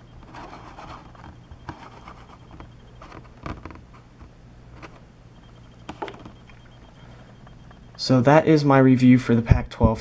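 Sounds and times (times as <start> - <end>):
faint low hum: 0.0 - 10.0
plastic handling taps and rubs: 5.8 - 6.5.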